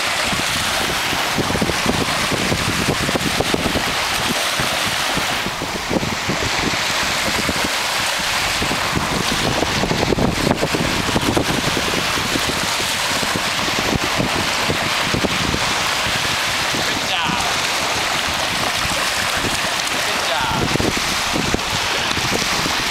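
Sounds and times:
small waves lapping on shore: 0:00.0 - 0:22.9
wind buffeting microphone: 0:00.0 - 0:22.9.

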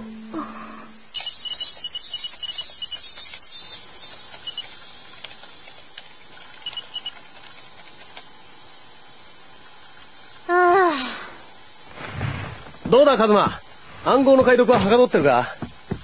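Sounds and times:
short high electronic beeps: 0:01.2 - 0:03.8.

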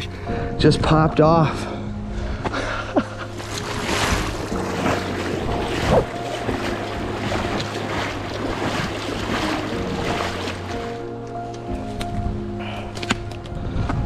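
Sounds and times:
river water rushing over gravel: 0:03.3 - 0:11.8.

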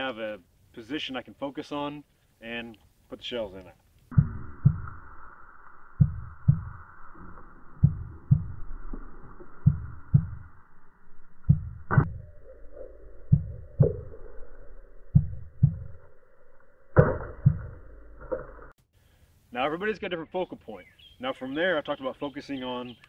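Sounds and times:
heartbeat thumps: 0:04.1 - 0:05.1, 0:05.8 - 0:10.6, 0:11.3 - 0:12.3, 0:13.2 - 0:14.2, 0:15.1 - 0:16.1, 0:17.0 - 0:17.8
faint steady drone: 0:04.1 - 0:18.3.

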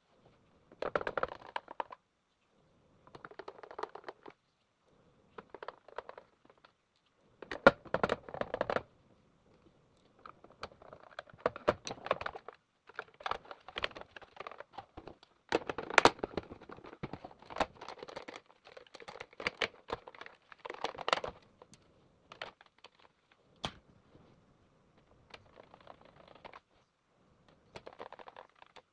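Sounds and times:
plastic parts clicking and rattling: 0:00.7 - 0:02.0, 0:03.1 - 0:04.4, 0:05.4 - 0:06.8, 0:07.4 - 0:08.9, 0:10.0 - 0:23.8, 0:25.0 - 0:26.7, 0:27.5 - 0:28.9.

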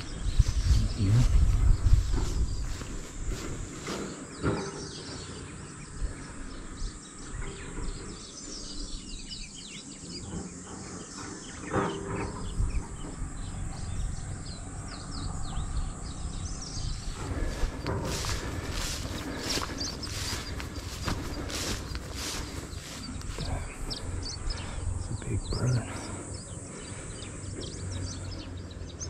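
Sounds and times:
steady low rumble: 0:00.0 - 0:04.4, 0:12.3 - 0:28.9
small birds chirping: 0:00.0 - 0:29.0.

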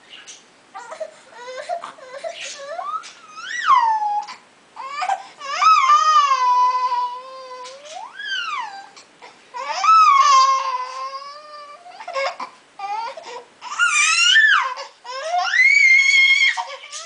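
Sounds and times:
infant crying and fussing: 0:00.8 - 0:17.0.

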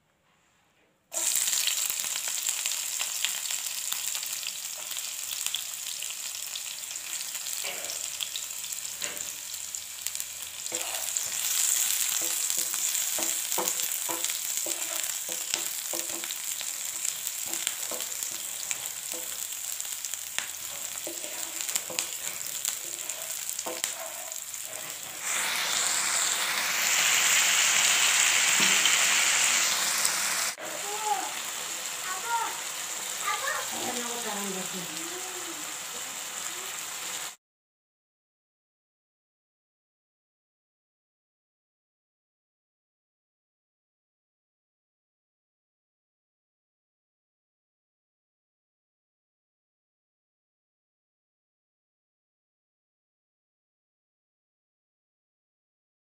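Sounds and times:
onion sizzling in hot oil: 0:01.1 - 0:37.4
spatula scraping and tapping pan: 0:09.0 - 0:09.4, 0:10.7 - 0:25.2, 0:28.5 - 0:29.0.

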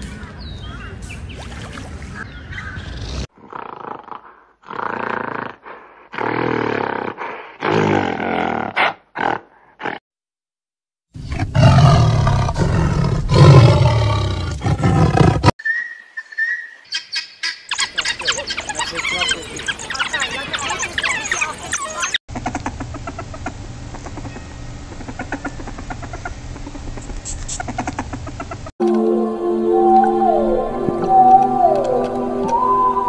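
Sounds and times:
tiger roaring: 0:11.2 - 0:15.5
wild dogs twittering chirps: 0:15.6 - 0:22.2.

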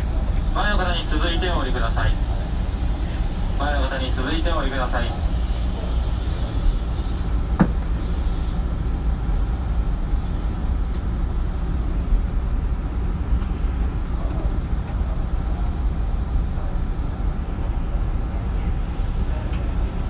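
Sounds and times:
train wheels rumbling on rail: 0:00.0 - 0:20.0
air hiss bursts: 0:04.9 - 0:08.7, 0:10.2 - 0:10.6.

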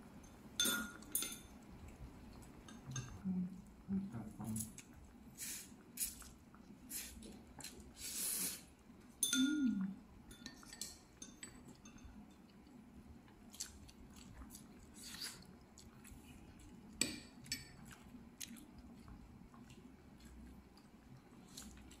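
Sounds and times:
people chewing: 0:06.0 - 0:08.6, 0:13.2 - 0:22.0.

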